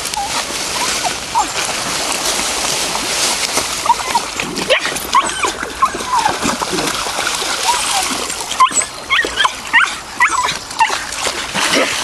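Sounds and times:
dogs whining and yipping: 0.0 - 1.7, 3.8 - 6.6, 7.6 - 11.1
dogs splashing through water: 0.0 - 12.0.

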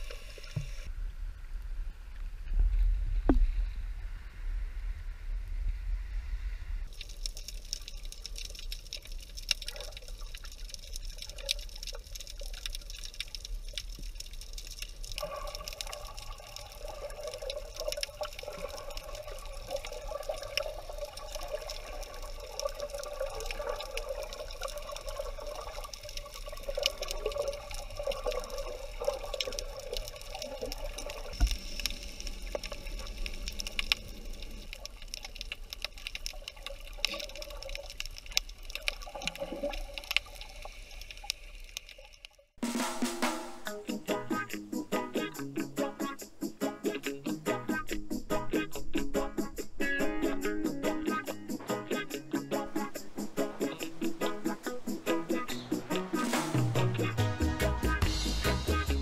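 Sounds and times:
steady fine crackle: 0.0 - 42.6
muffled underwater sea sound: 49.2 - 57.2.

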